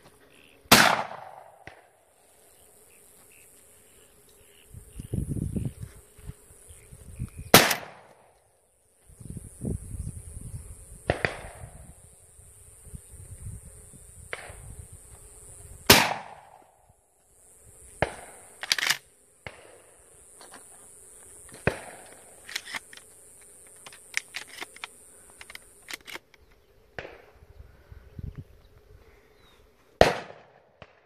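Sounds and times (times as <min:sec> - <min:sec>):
distant gunshots: 0:00.7 - 0:01.9, 0:07.5 - 0:08.0, 0:15.9 - 0:16.6, 0:30.0 - 0:31.0
shotgun shots: 0:00.7 - 0:01.9, 0:07.5 - 0:08.1, 0:15.9 - 0:16.6, 0:30.0 - 0:31.0.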